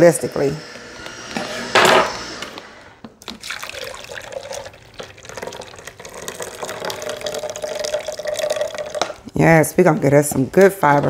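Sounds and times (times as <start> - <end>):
juice pouring into a pitcher: 3.2 - 9.3.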